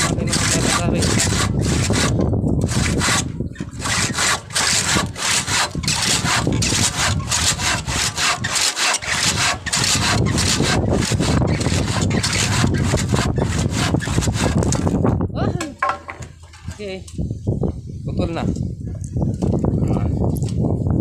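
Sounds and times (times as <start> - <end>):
hand saw cutting wood: 0.0 - 15.0.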